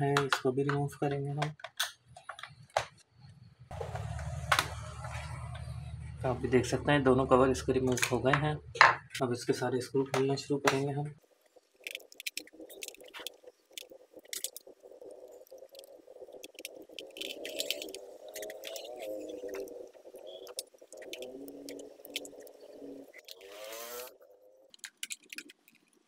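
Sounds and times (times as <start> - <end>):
screwdriver clicking and scraping: 24.7 - 26.0.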